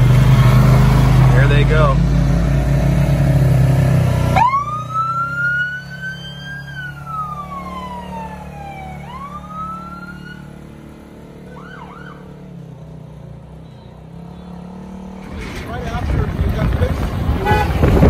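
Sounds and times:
engine running: 0:00.0 - 0:18.0
siren wailing: 0:04.3 - 0:10.7, 0:11.4 - 0:12.4.

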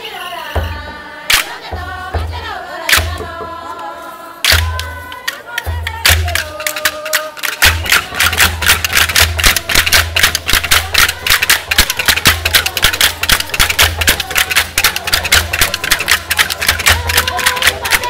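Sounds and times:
faint singing: 0:00.0 - 0:18.0
women clapping hands: 0:07.7 - 0:18.0.

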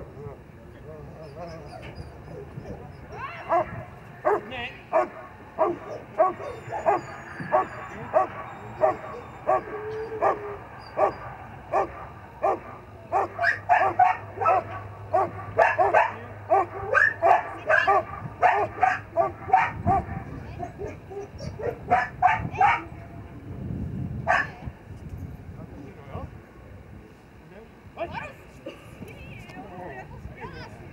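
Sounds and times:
dog barking sharply: 0:03.5 - 0:10.4, 0:11.0 - 0:20.1.

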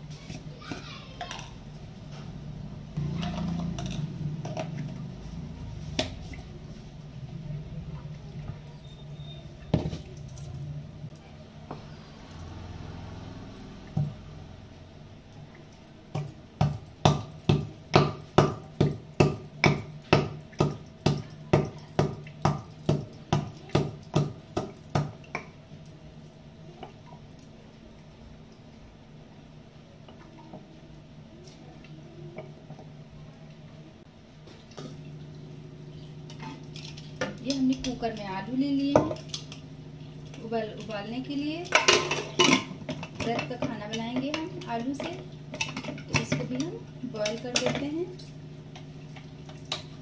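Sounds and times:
pestle pounding in mortar: 0:16.2 - 0:25.2.

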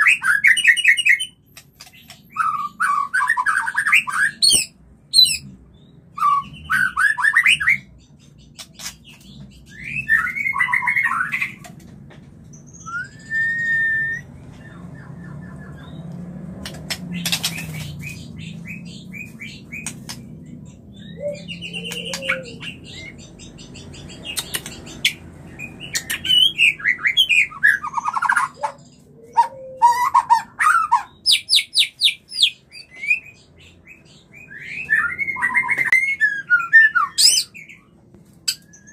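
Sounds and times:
bird chattering and whistling: 0:16.9 - 0:37.8.

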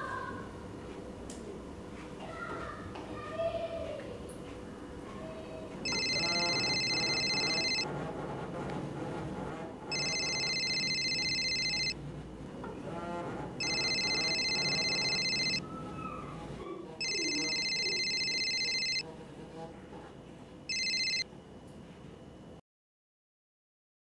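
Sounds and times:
low background murmur: 0:00.0 - 0:21.2
mobile phone ringing: 0:05.8 - 0:07.9, 0:09.9 - 0:12.0, 0:13.6 - 0:15.6, 0:17.0 - 0:19.0, 0:20.7 - 0:21.3.

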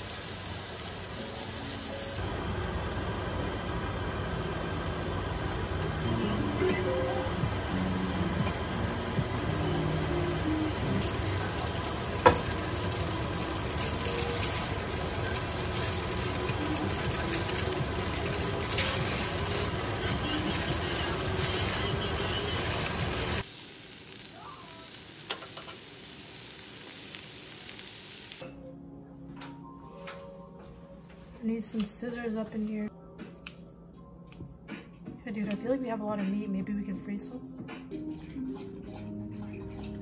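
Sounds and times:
meat sizzling on a grill: 0:00.0 - 0:02.2, 0:06.1 - 0:28.4
noodles sizzling in a wok: 0:00.0 - 0:02.2, 0:06.1 - 0:28.4.

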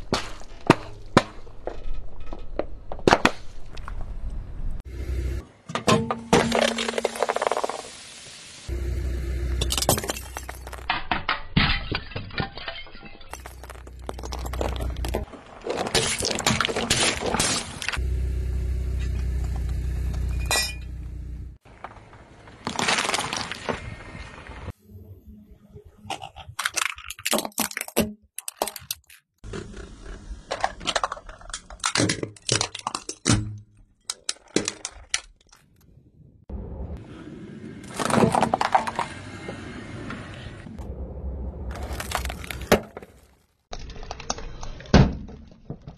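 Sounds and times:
tyre crushing brittle objects: 0:13.2 - 0:18.0, 0:21.7 - 0:24.1, 0:41.7 - 0:45.9
plastic cracking under tyre: 0:21.7 - 0:23.8.

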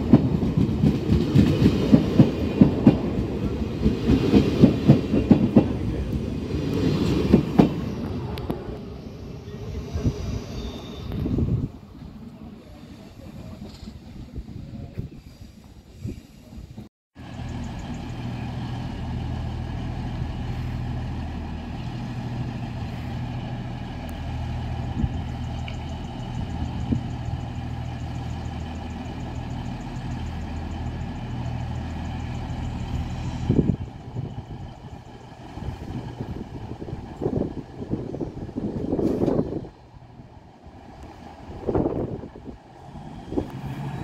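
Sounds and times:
train diesel engine idling: 0:17.2 - 0:44.0.

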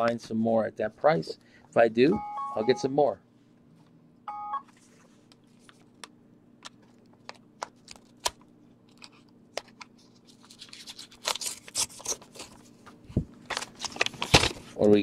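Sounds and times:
paper rustling and crinkling: 0:06.8 - 0:15.0
scissors snipping paper: 0:10.5 - 0:12.6.

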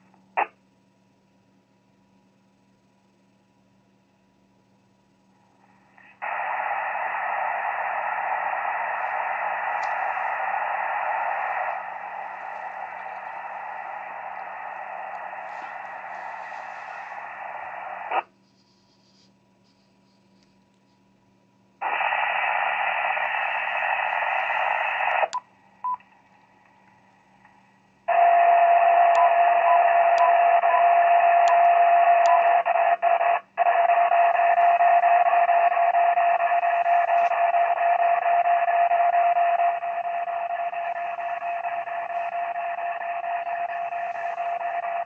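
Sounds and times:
radio speaker hiss: 0:05.4 - 0:20.5, 0:21.8 - 0:45.0
click: 0:09.8 - 0:10.0, 0:29.1 - 0:29.3, 0:31.4 - 0:32.4.

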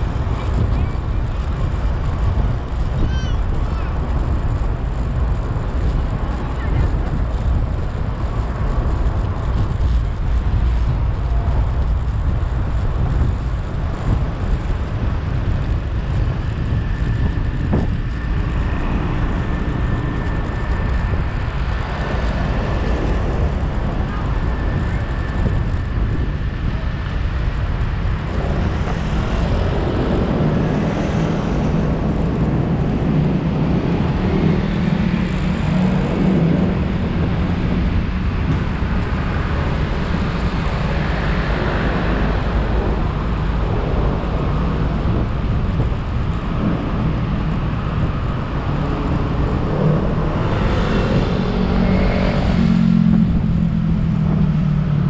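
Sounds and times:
deep engine drone: 0:00.0 - 0:55.0
vehicle road and engine noise: 0:00.0 - 0:55.0.

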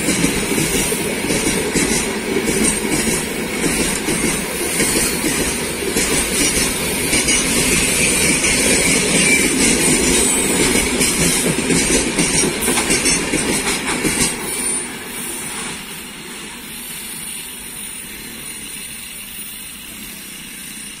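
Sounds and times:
wheels clacking over rail joints: 0:00.0 - 0:14.6
freight train rolling past: 0:00.0 - 0:21.0.

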